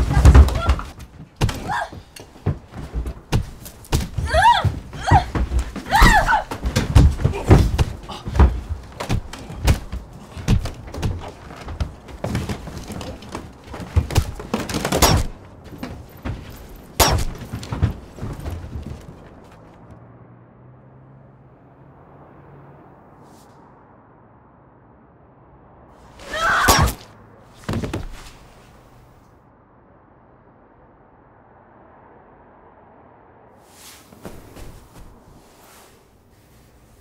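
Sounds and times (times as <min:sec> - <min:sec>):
fight thuds and knocks: 0:00.0 - 0:19.8, 0:26.2 - 0:28.5, 0:34.2 - 0:35.3.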